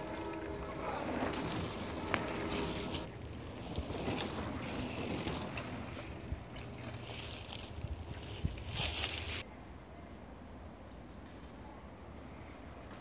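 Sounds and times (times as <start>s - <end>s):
bike tyres rolling on dirt and leaves: 0.0s - 9.4s
bike clicks: 4.9s - 9.2s.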